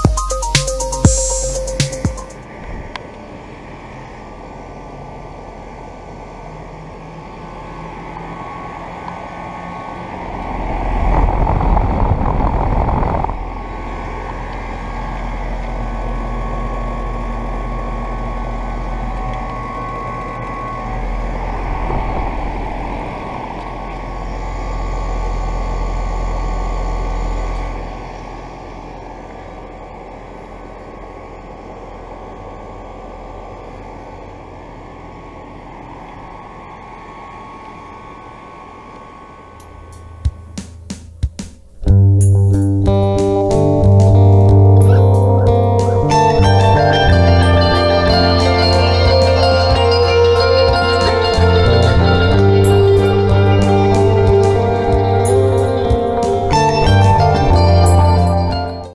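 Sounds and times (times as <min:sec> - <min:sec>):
air conditioner fan whoosh: 0:00.0 - 0:58.5
compressor hum: 0:00.0 - 0:58.9
air blowing across microphone: 0:10.3 - 0:13.8.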